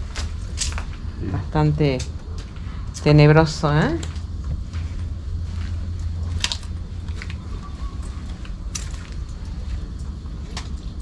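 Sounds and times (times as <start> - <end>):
low rumble on microphone: 0.0 - 11.0
crunches and crackles: 3.9 - 11.0.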